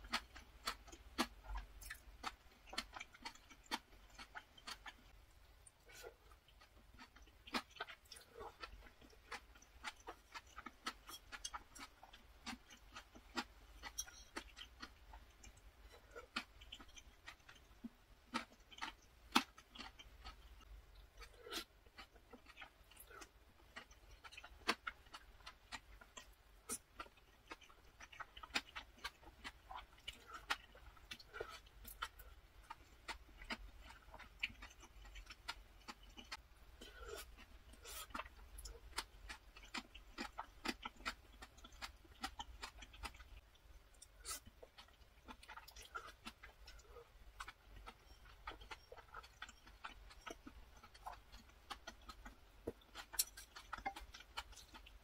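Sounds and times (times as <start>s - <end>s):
person chewing and slurping noodles: 0.0s - 55.0s
wet mouth clicks: 48.5s - 54.9s.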